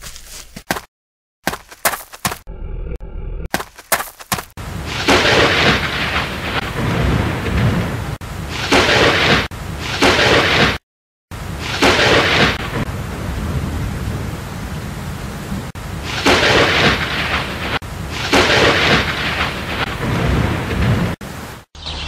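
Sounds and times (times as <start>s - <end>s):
low rumble: 2.5s - 3.5s.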